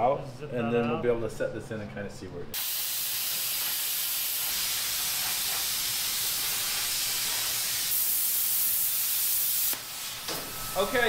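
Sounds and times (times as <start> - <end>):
plasma cutter hissing: 2.6 - 11.0.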